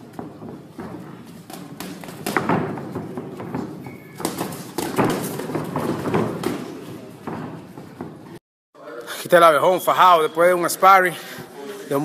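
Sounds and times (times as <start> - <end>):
boxing gloves landing punches: 0.0 - 8.2.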